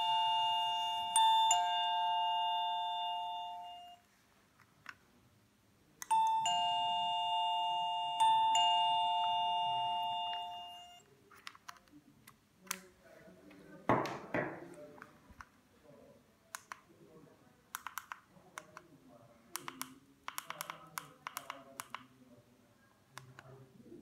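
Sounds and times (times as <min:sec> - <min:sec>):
two-tone doorbell chime: 0:00.0 - 0:04.0, 0:06.1 - 0:11.0
device being handled: 0:11.3 - 0:12.9.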